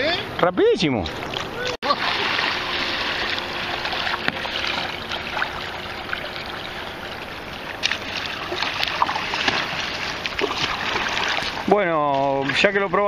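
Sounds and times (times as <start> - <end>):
kayak paddle splashing and dripping: 1.1 - 13.0.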